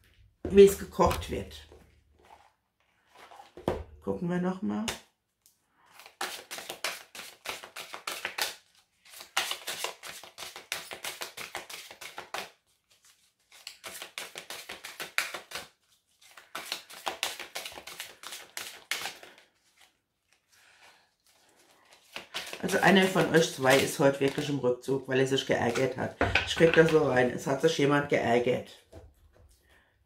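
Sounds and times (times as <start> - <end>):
cards being shuffled: 5.9 - 24.6.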